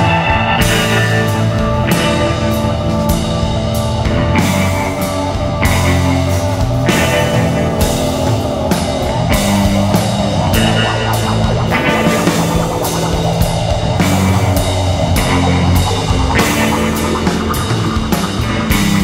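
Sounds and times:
bass: 0.0 - 19.0
distorted electric guitar: 0.0 - 19.0
drums with cymbal crashes: 0.0 - 19.0
warbling mid-range line: 4.4 - 19.0.

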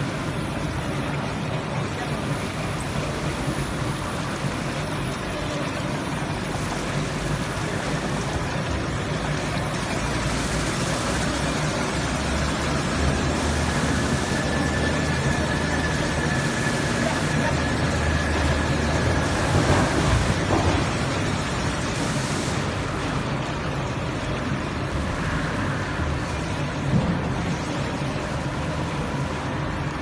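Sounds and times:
production line mechanical noise: 0.0 - 30.0.

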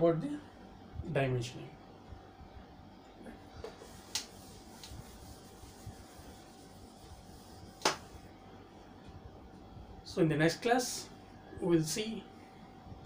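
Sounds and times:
faint steady hum: 0.0 - 13.0
duster wiping whiteboard: 3.6 - 8.3.

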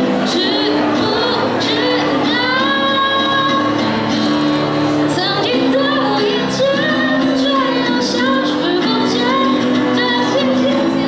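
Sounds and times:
girl singing into a microphone: 0.1 - 3.9, 5.0 - 11.0.

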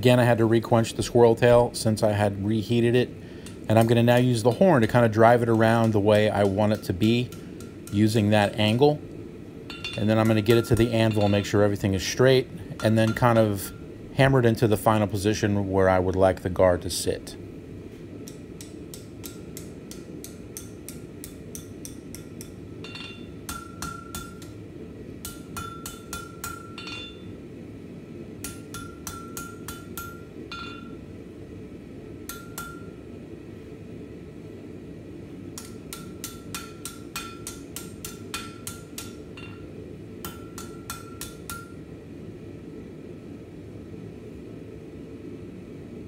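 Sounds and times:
hammer striking hot steel: 3.4 - 9.0, 9.6 - 11.8, 18.2 - 24.6, 25.2 - 27.3, 28.4 - 31.0, 32.2 - 33.0, 35.6 - 41.8
anvil ringing: 9.7 - 11.7, 18.3 - 24.5, 25.2 - 27.3, 28.4 - 31.0, 32.3 - 33.0, 35.6 - 41.8.

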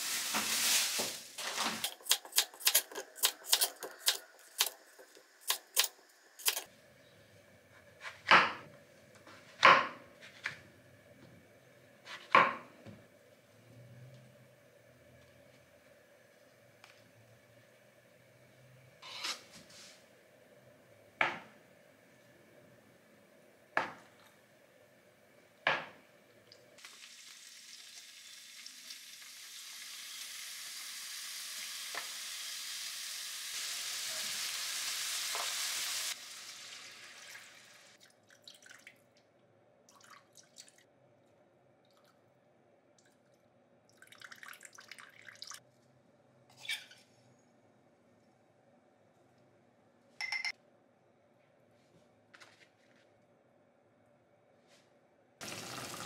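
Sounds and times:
meat sizzling in a frying pan: 0.0 - 1.4, 26.8 - 37.9.

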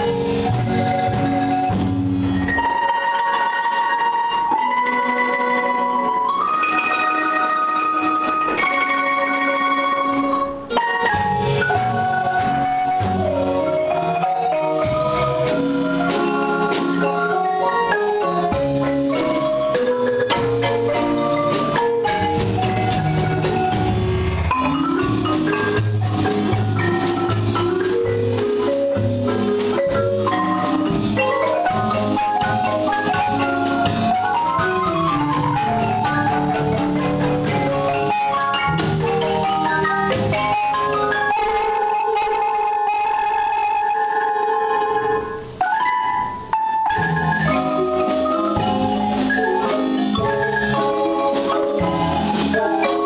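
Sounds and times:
drum kit: 0.0 - 53.0
marimba playing fast runs: 0.0 - 53.0
bass line: 18.6 - 41.1.

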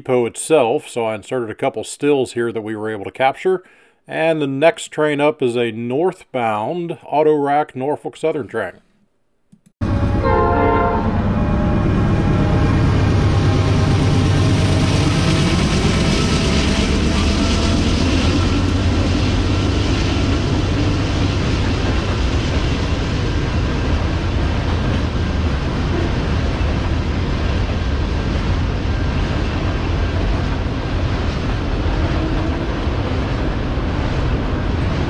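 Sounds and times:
train horn: 9.8 - 14.5, 25.9 - 26.3, 32.0 - 32.7
freight train rumbling past: 9.8 - 35.0.

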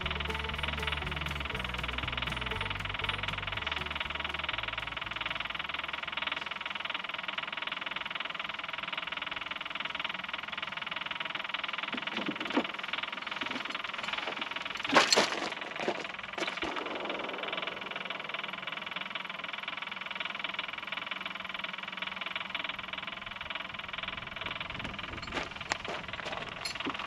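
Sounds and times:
tractor diesel engine idling: 0.0 - 27.0.

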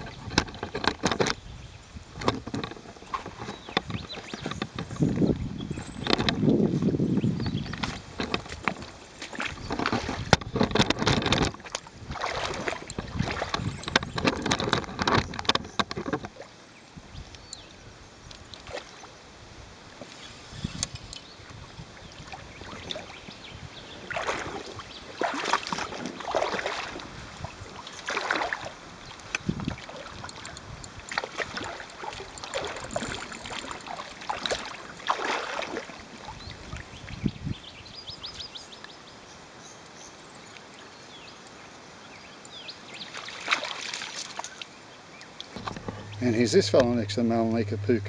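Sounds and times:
fish splashing and thrashing: 0.0 - 1.4, 7.5 - 16.5, 23.9 - 37.0, 43.1 - 44.7, 45.4 - 48.0
water lapping: 2.1 - 16.8, 20.1 - 38.8, 42.6 - 48.0.

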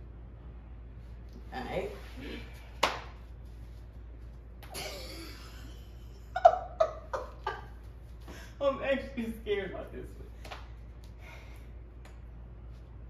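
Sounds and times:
woman laughing: 4.7 - 7.9.

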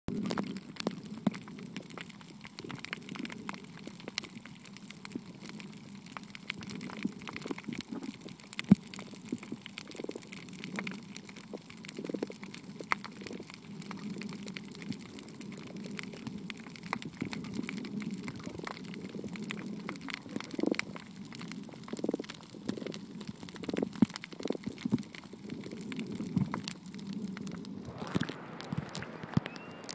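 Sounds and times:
clicks and crackles: 0.1 - 29.9
underwater rumble of moving water: 0.1 - 29.9.

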